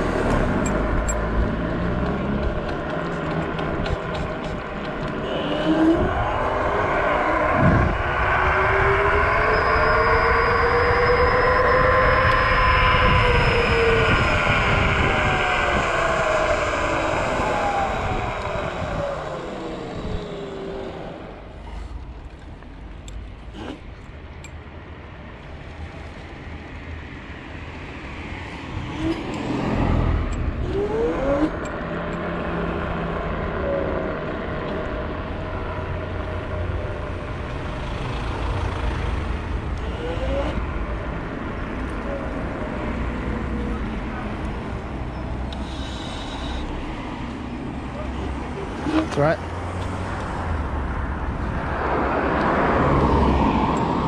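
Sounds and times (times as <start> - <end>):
wind rumbling on microphone: 0.0 - 45.4, 46.6 - 54.0
electric scooter motor whine: 0.3 - 21.7, 39.6 - 47.5.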